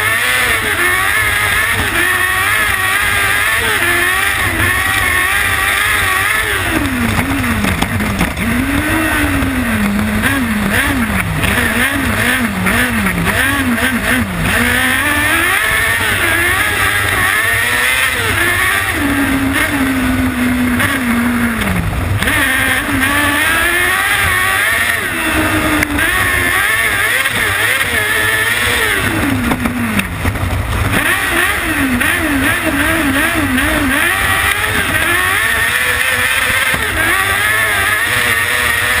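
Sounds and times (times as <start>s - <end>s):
racing engine revving: 0.0s - 39.0s
wind and track noise: 0.0s - 39.0s.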